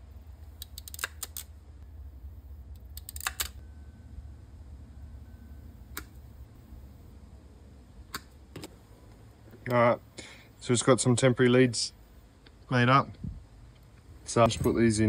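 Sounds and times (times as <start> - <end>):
low steady rumble: 0.0 - 15.0
wire-stripping pliers clicking: 0.6 - 1.5.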